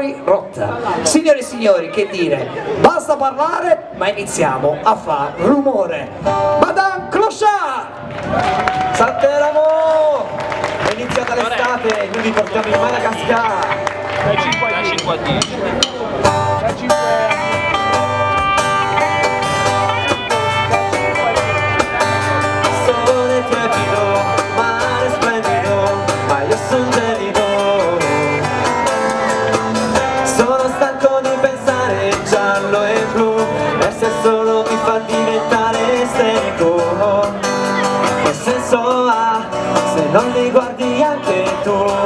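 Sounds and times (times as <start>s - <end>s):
live band playing pop song: 9.8s - 42.0s.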